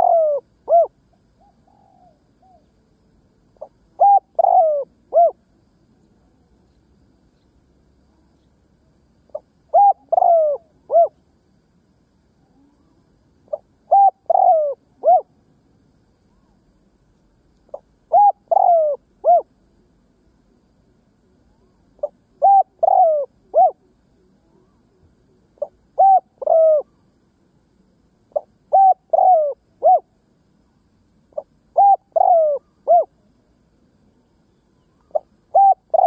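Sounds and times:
dove cooing: 0.0 - 2.7, 3.6 - 5.4, 9.3 - 11.2, 12.6 - 15.4, 17.7 - 19.5, 22.0 - 24.8, 25.6 - 27.0, 28.3 - 30.1, 31.3 - 33.2, 34.9 - 36.0.

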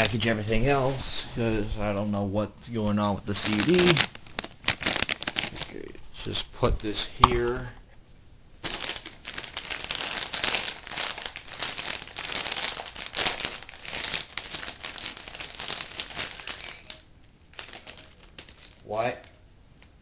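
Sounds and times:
plastic packaging crinkling: 3.3 - 6.0, 8.6 - 19.4.

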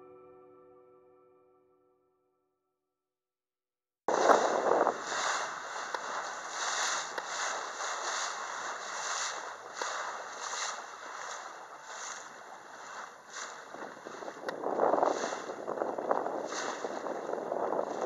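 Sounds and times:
water rushing along boat bow: 4.1 - 18.0
wind buffeting microphone: 4.1 - 18.0.

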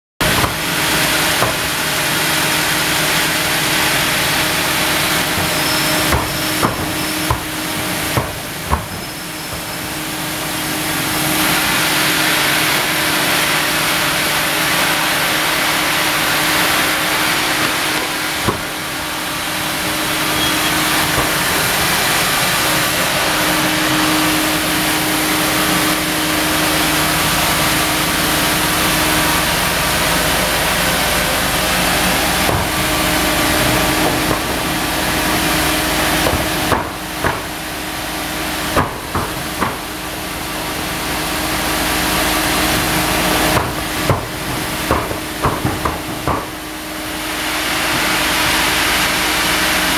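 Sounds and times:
sharp knocks: 0.2 - 1.8, 5.2 - 9.9, 17.6 - 18.8, 36.2 - 37.6, 38.7 - 39.9, 43.5 - 46.6
band saw cutting log: 0.2 - 49.9.

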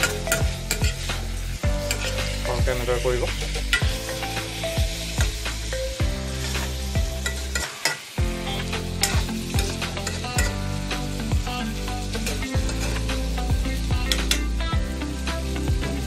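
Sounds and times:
metal spoon scraping a wok: 0.0 - 2.4, 6.4 - 8.2, 9.0 - 10.6, 12.0 - 13.1
frying sizzle: 0.0 - 16.0.

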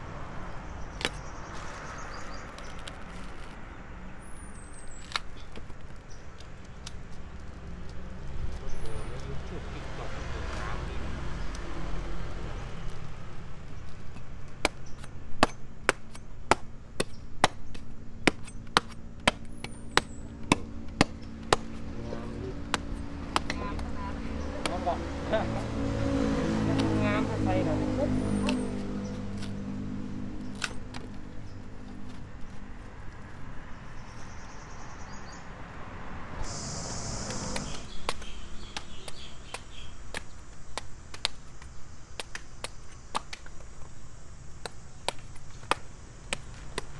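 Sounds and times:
knife chopping fruit: 14.2 - 23.9
high hiss: 36.3 - 38.6.

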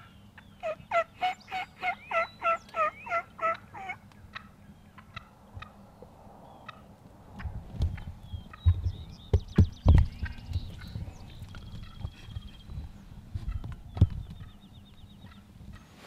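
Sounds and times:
wild turkey yelping: 0.1 - 5.8, 6.6 - 6.9.

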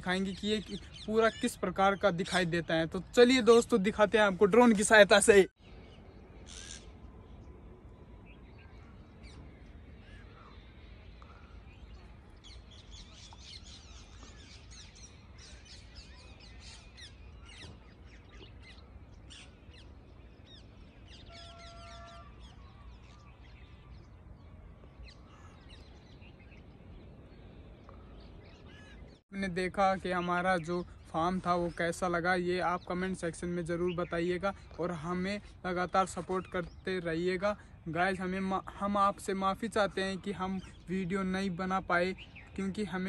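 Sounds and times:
small birds chirping and trilling: 0.0 - 43.0.

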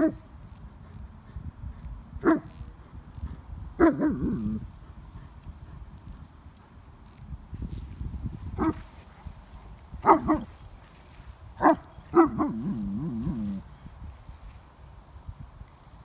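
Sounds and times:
dog barking: 2.2 - 2.5, 3.8 - 4.4, 10.0 - 10.5, 11.6 - 12.6
dog whining grumble: 12.5 - 13.7.

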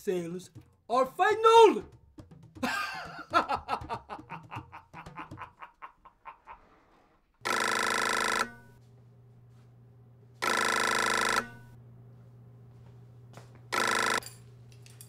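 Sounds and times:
desk telephone ringing: 7.4 - 8.8, 10.4 - 11.8, 13.7 - 14.3.

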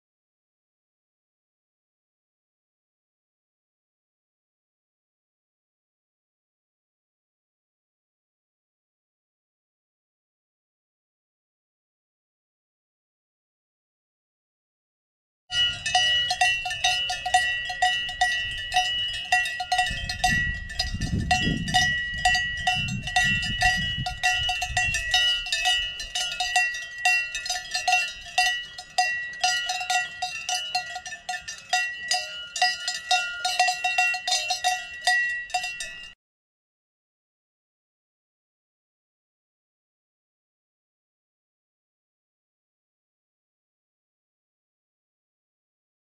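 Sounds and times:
cattle bells clanking: 15.5 - 36.2.

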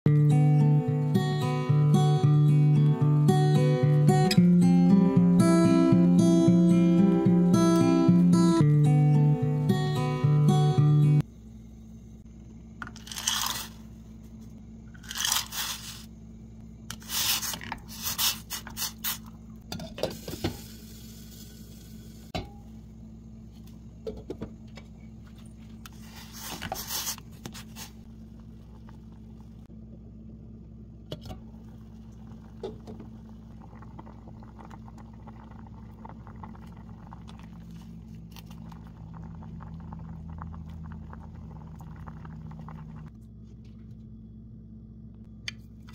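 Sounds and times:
steady low hum: 0.1 - 45.9
water simmering: 31.4 - 43.1.

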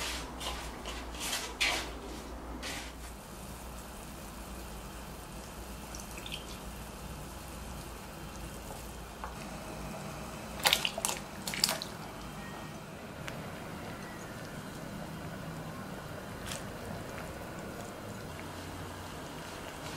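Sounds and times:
broth simmering in a pot: 3.1 - 19.9
splashes and clatters: 10.6 - 12.0.

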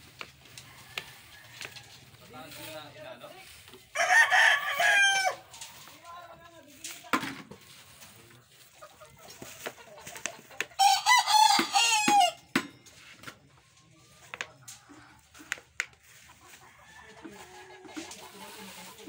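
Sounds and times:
rooster crowing: 0.6 - 2.1, 3.9 - 5.4, 10.8 - 12.4.

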